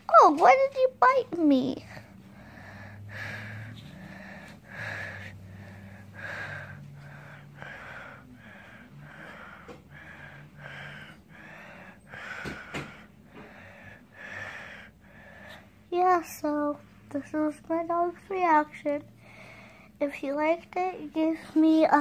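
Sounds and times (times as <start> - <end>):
faint low hum: 0.0 - 22.0
dog breathing heavily: 1.8 - 15.9.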